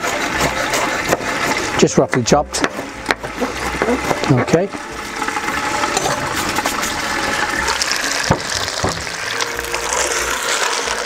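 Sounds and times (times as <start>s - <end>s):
clams sizzling and bubbling: 0.0s - 11.0s
sharp knocks: 8.3s - 9.2s.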